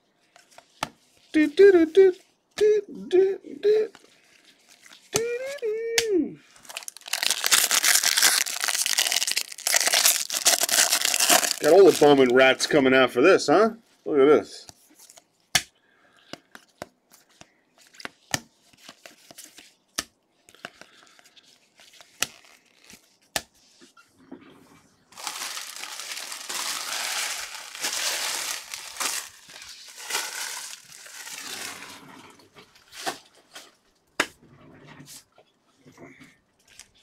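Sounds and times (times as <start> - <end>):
packaging crinkling and tearing: 6.5 - 12.4, 21.7 - 23.2, 25.1 - 32.0.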